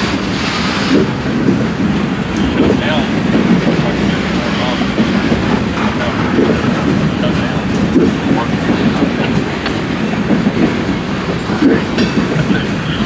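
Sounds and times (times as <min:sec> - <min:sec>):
freight train rumbling past: 0:00.0 - 0:13.0
wheels clattering over rail joints: 0:00.0 - 0:13.0.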